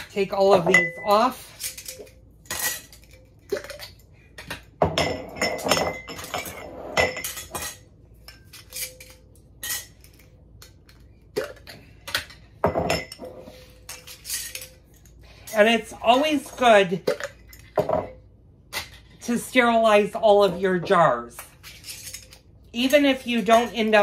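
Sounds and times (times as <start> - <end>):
metal clinking against glass: 4.8 - 10.0.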